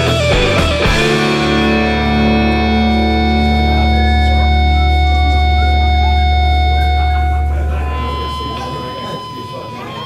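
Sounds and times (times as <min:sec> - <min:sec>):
deep bass note: 0:00.0 - 0:09.3
guitar chord ringing: 0:00.0 - 0:10.0.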